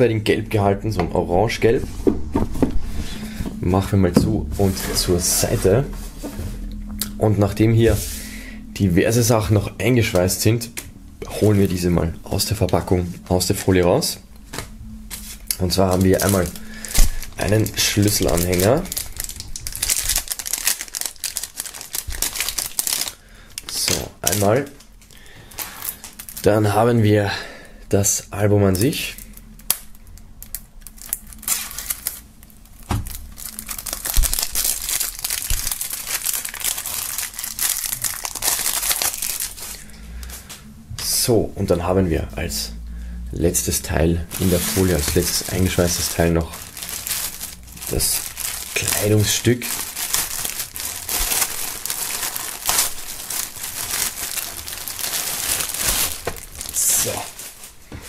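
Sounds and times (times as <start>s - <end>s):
plastic wrap crinkling: 8.7s - 27.0s, 28.7s - 40.4s, 43.6s - 58.0s
knife slitting plastic wrap: 44.3s - 57.6s.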